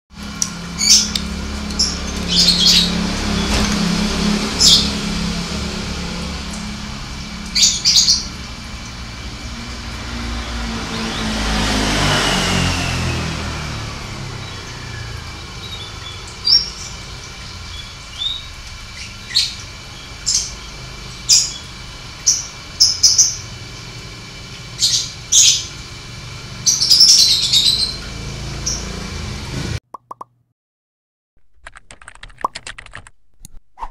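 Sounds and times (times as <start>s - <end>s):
canary chirping: 0.7s - 3.6s, 4.5s - 5.1s, 7.5s - 8.4s, 14.4s - 23.5s, 24.8s - 25.8s, 26.6s - 29.0s.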